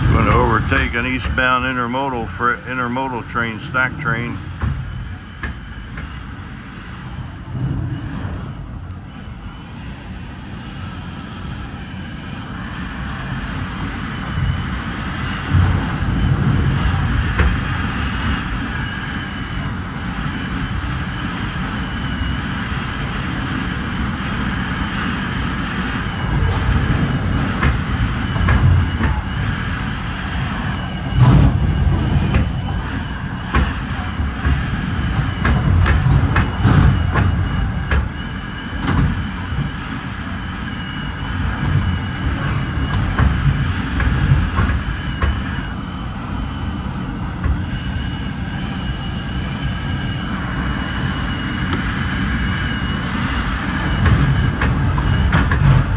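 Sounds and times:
wheels clicking over rails: 0.0s - 6.2s, 22.8s - 38.2s, 53.8s - 55.9s
passing freight train: 0.0s - 55.9s
train rumbling at speed: 0.0s - 55.9s.

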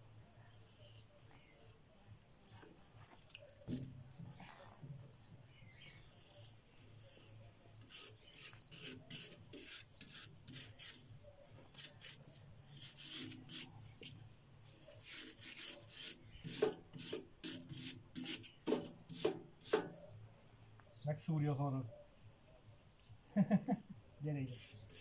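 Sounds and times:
hand sanding rusty metal: 7.8s - 14.2s, 14.8s - 20.0s, 24.5s - 25.0s.

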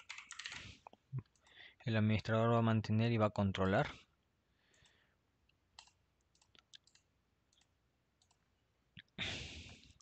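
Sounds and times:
computer mouse clicks: 5.5s - 8.4s.

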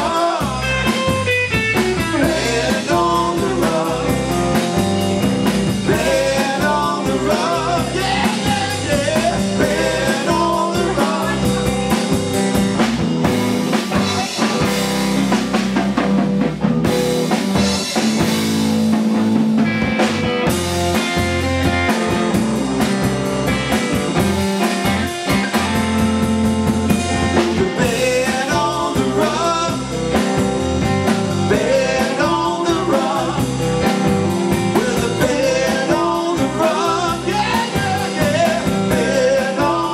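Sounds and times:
man singing: 0.0s - 4.8s, 5.6s - 12.2s, 27.1s - 30.4s, 31.3s - 39.9s
drum kit: 0.0s - 39.9s
electric bass: 0.0s - 39.9s
electric guitar: 0.0s - 39.9s.

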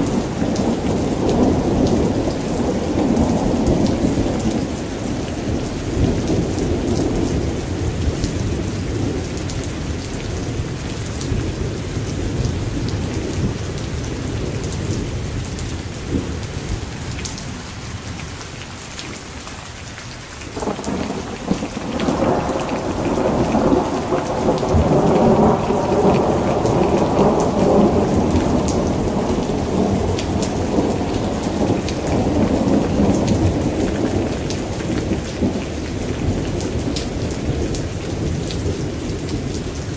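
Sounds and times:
steady rain: 0.0s - 39.9s
rolling thunder: 20.6s - 39.6s.

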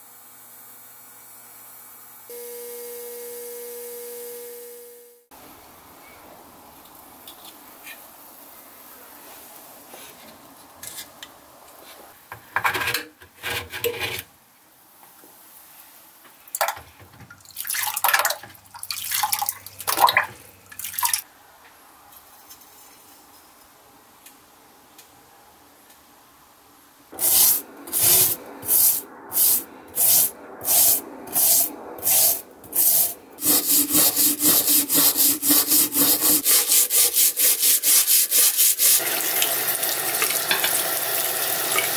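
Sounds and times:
fizzing electrolysis bath: 17.3s - 21.2s, 27.2s - 41.9s
stiff brush scrubbing metal: 27.2s - 39.0s.

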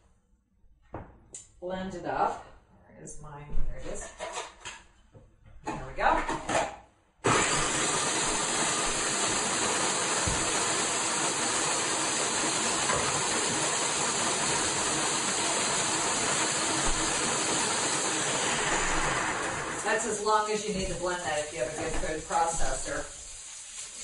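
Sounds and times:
food processor motor running: 7.2s - 19.9s.

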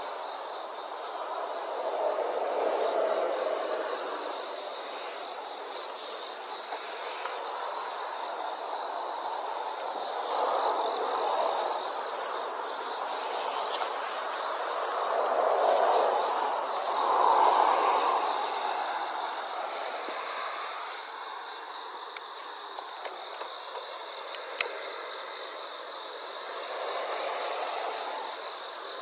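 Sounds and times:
broad rushing noise: 0.0s - 22.0s
high insect buzz: 0.0s - 29.0s.

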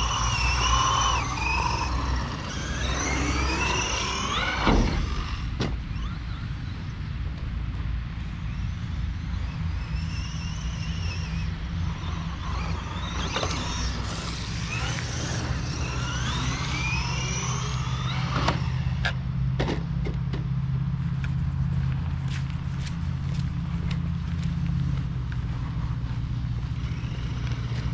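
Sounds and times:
electric motor whining: 0.0s - 6.5s, 8.7s - 19.2s, 23.3s - 27.9s.

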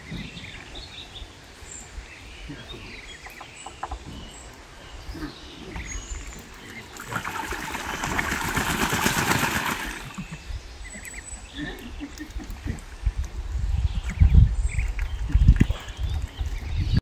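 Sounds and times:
duck splashing in water: 6.9s - 10.3s
wind buffeting microphone: 10.1s - 17.0s.

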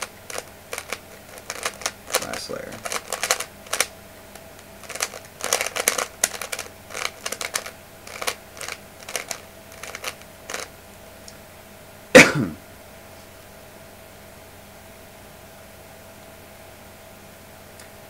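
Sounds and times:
puzzle cube clacking: 0.0s - 10.7s.

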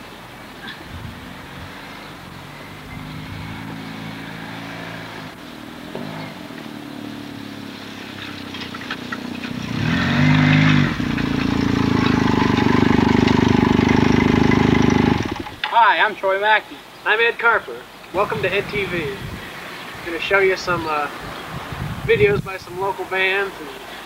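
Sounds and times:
motorcycle engine running: 5.9s - 15.6s.

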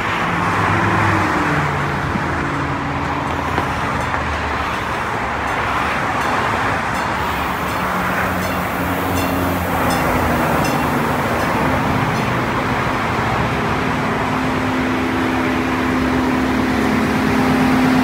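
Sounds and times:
diesel engine: 0.0s - 18.0s
train wheels rumbling: 3.0s - 18.0s.

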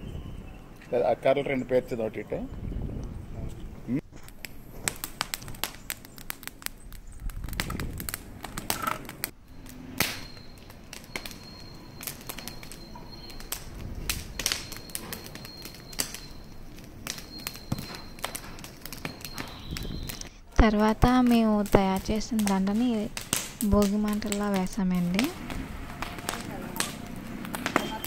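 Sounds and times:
low flame rumble: 0.0s - 28.0s
bonfire crackling and popping: 0.6s - 28.0s.

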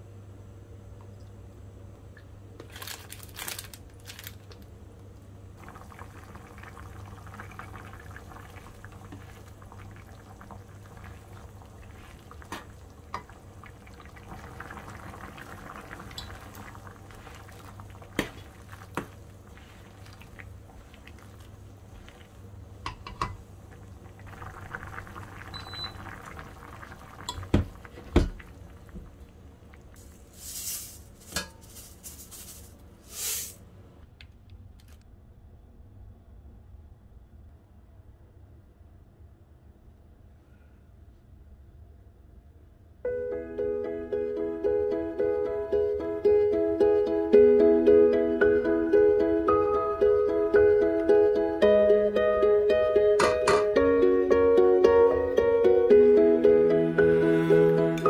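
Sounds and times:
seasoning sachets rustling: 2.6s - 4.7s, 30.0s - 33.6s
steady low hum: 3.8s - 43.1s
broth simmering in a pan: 5.6s - 33.4s.

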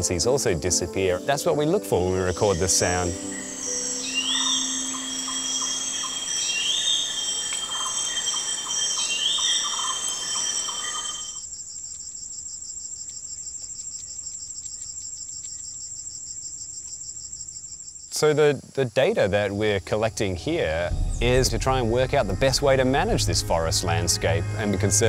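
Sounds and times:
steady high insect drone: 1.9s - 25.0s
dense insect chorus: 2.0s - 25.0s
pulsing low calls: 19.4s - 25.0s.

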